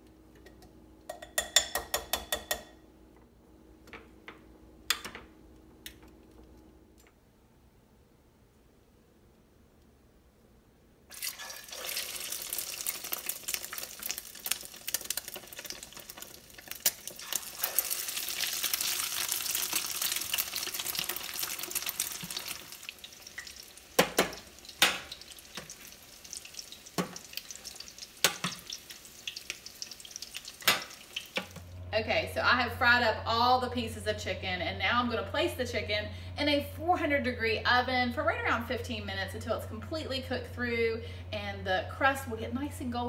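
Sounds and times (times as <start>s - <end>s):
spoon knocking against pan: 1.1s - 2.8s
chicken frying in hot oil: 11.1s - 31.7s.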